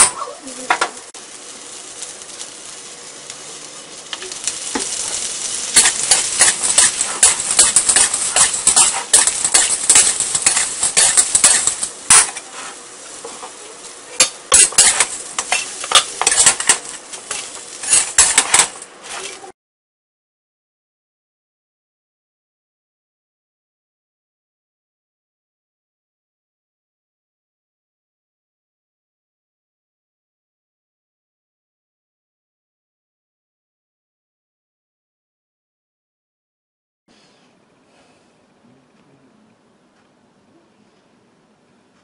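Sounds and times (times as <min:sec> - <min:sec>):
soft sizzle: 0:00.0 - 0:19.6
metal spatula scraping a wok: 0:04.8 - 0:13.6, 0:14.2 - 0:19.5.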